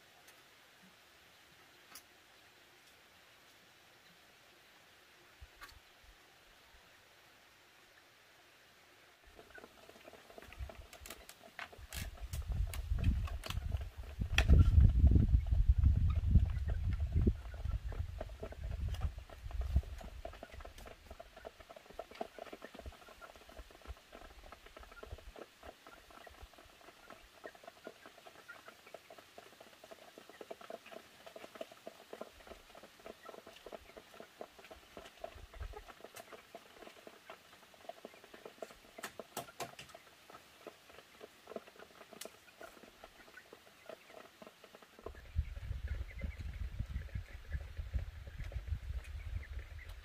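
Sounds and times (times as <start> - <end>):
rustling of dry thatch: 9.4 - 16.4.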